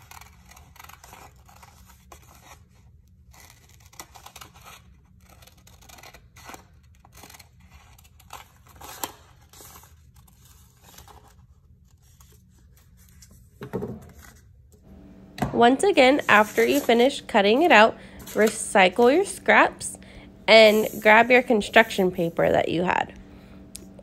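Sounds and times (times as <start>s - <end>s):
scissors snipping paper: 0.0s - 11.3s
paper handling: 3.5s - 24.0s.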